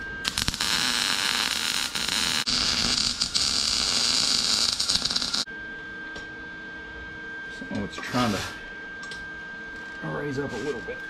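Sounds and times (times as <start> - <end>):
welder arc crackling and hissing: 0.0 - 5.5, 8.0 - 8.6.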